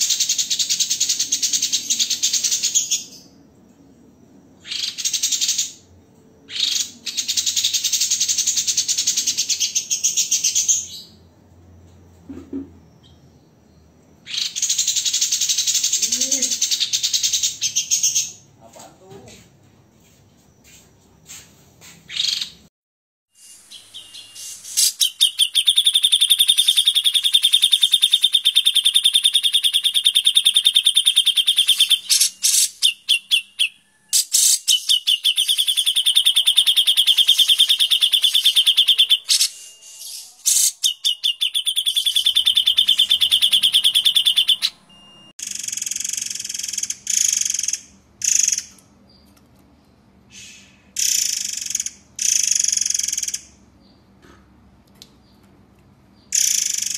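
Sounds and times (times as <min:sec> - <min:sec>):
songbird fast trills: 0:23.4 - 0:48.7
buzzy bird bursts: 0:24.4 - 0:25.6.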